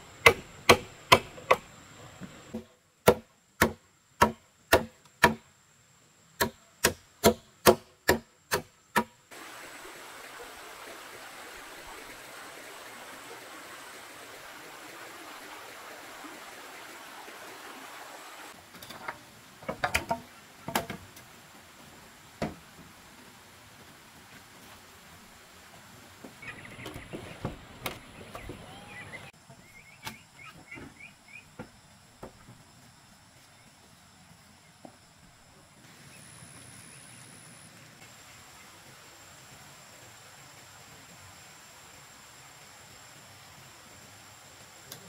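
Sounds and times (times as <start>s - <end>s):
machete chopping bamboo: 0.2s - 1.6s, 2.5s - 5.4s, 6.4s - 9.2s
bamboo poles knocking: 0.2s - 1.7s, 2.5s - 5.4s, 6.4s - 9.2s, 18.9s - 21.1s
stream rushing: 9.3s - 29.4s.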